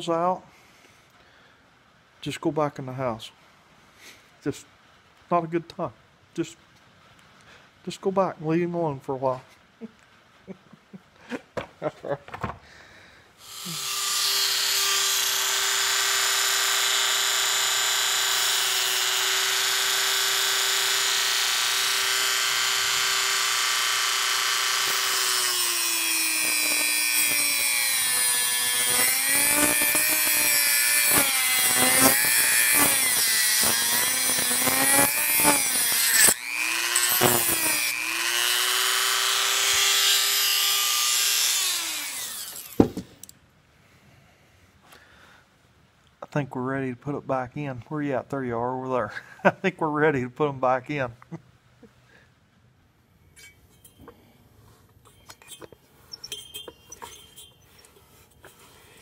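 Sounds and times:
cut-off wheel cutting: 0:13.4 - 0:43.0
rotary tool high whine: 0:13.4 - 0:43.3, 0:55.0 - 0:59.0.

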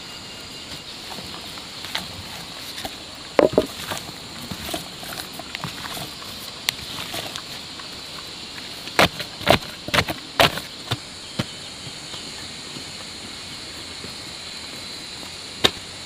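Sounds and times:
pole thudding on earth: 0:03.4 - 0:03.8.

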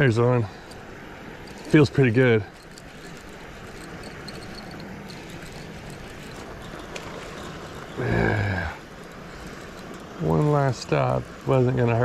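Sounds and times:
steady outdoor hiss: 0:00.0 - 0:12.0
fishing reel being cranked: 0:00.5 - 0:10.6
faint ticks: 0:02.5 - 0:08.0.

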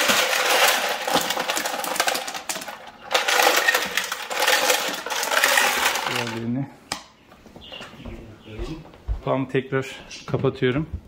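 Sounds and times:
ice cubes clattering in plastic bin: 0:00.0 - 0:06.5.

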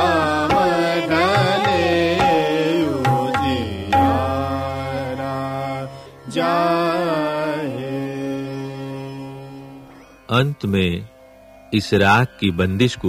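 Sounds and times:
person singing classical vocals: 0:00.0 - 0:09.9
steady drone: 0:00.0 - 0:10.5.

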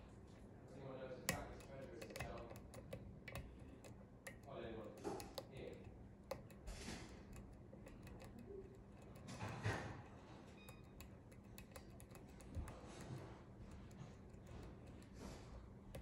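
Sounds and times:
lock pick clicking: 0:01.3 - 0:09.6, 0:10.6 - 0:13.1.

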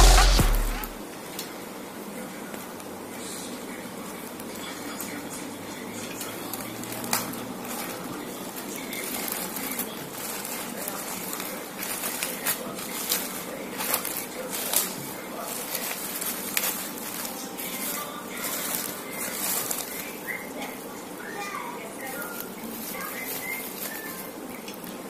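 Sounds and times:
plastic bag crinkling: 0:06.2 - 0:21.0, 0:21.8 - 0:25.0.

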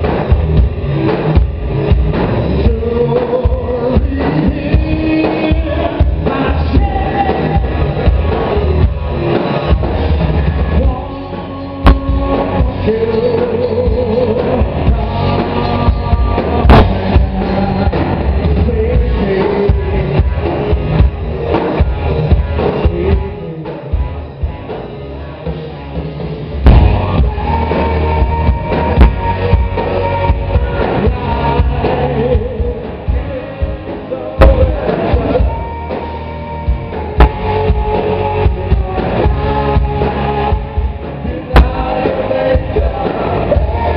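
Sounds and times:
rock band playing: 0:00.0 - 0:43.9
man singing: 0:02.4 - 0:09.4, 0:10.5 - 0:21.2, 0:21.8 - 0:24.2, 0:26.7 - 0:43.9
loud drum hit: 0:16.2 - 0:17.4, 0:26.6 - 0:32.8.

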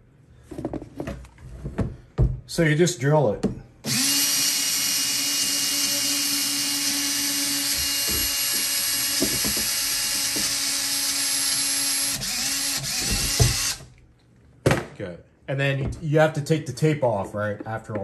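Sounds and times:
drill motor hum: 0:03.8 - 0:13.9
hole saw cutting plastic: 0:03.9 - 0:13.9.

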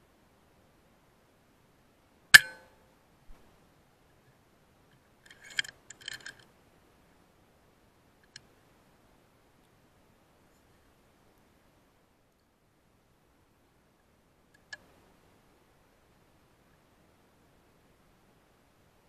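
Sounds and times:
rifle shot: 0:02.4 - 0:02.7
sharp metallic clicks: 0:02.4 - 0:02.7.

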